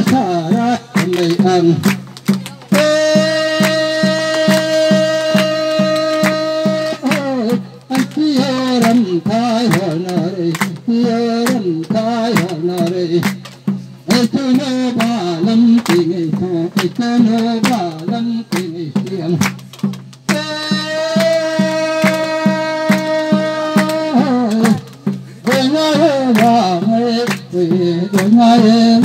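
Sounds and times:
person singing melody: 0.0 - 13.2, 20.3 - 29.0
steady drum beat: 0.0 - 29.0.

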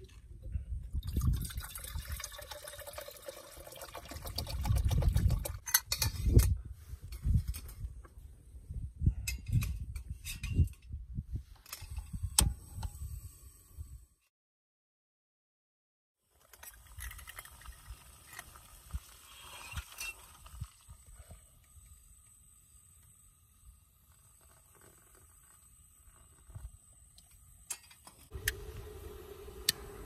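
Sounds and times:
water pouring into metal pot: 1.0 - 5.6.

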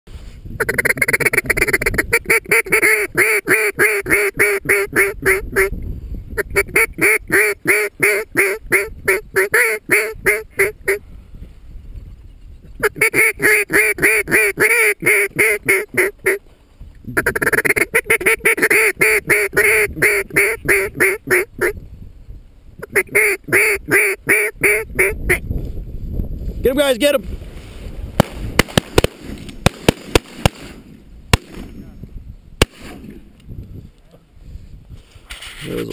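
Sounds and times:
duck quacking: 0.6 - 5.7, 6.4 - 11.0, 12.8 - 16.4, 17.2 - 21.8, 22.8 - 25.4.

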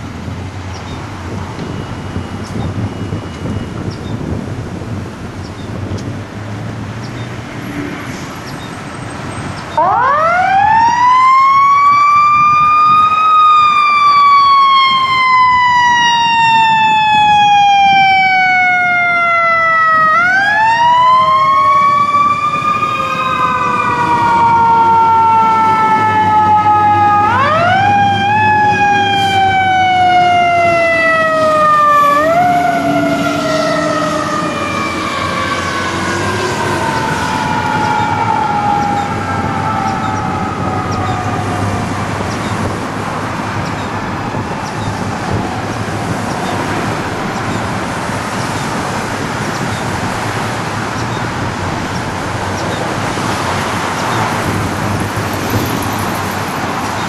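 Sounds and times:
mechanical siren rising and falling: 9.7 - 42.8.

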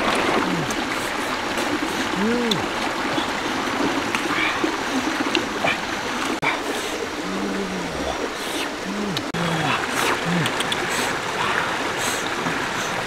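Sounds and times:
stream flowing over rocks: 0.0 - 13.0
low murmured voice: 0.4 - 0.8, 2.1 - 3.3, 6.4 - 12.9.

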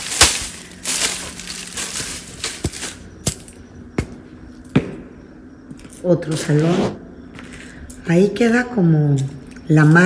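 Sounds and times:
footsteps crunching over debris: 0.0 - 4.9.

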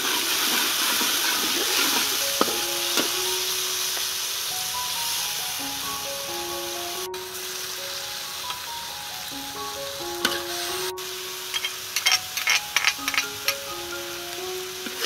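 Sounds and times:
mussels sizzling in oil: 0.0 - 15.0
background music: 1.8 - 15.0.

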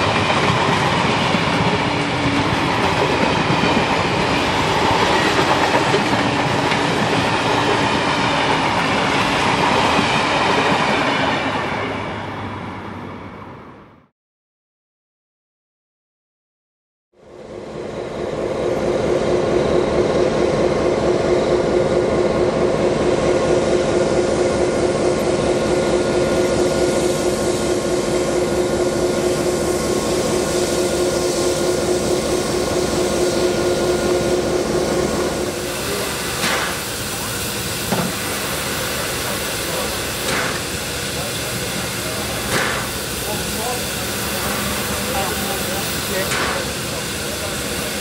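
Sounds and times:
diesel locomotive engines droning: 0.0 - 14.1, 17.2 - 48.0
steam hissing: 26.3 - 48.0.

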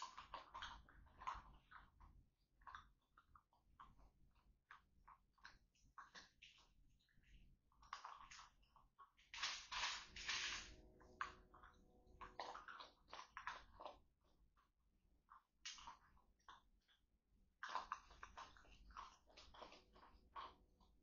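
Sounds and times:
kibble crunching in metal bowl: 7.8 - 14.0, 17.6 - 21.0.

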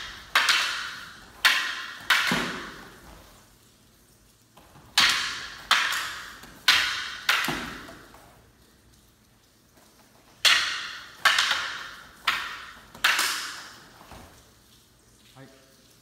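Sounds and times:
wooden staffs clacking: 0.0 - 3.5, 4.6 - 8.5, 9.8 - 14.5.

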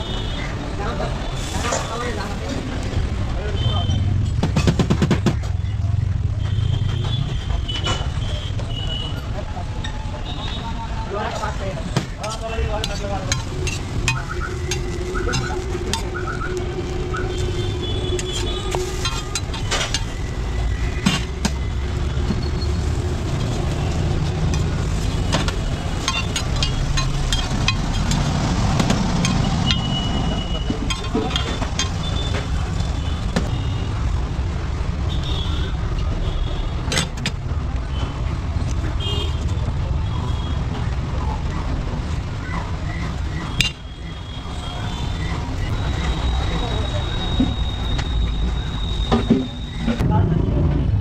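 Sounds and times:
road traffic rumbling: 0.0 - 51.0
metal spatula scraping griddle: 16.9 - 20.4.

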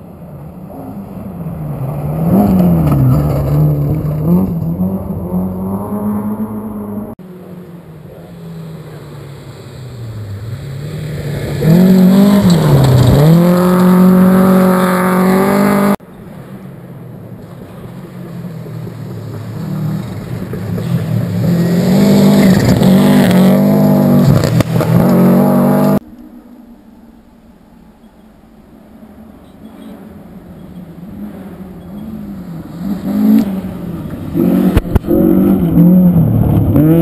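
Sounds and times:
second rally car revving: 0.3 - 16.8, 17.4 - 26.0, 29.5 - 37.0
rally car engine revving: 0.6 - 16.6, 17.4 - 26.0, 29.6 - 37.0.

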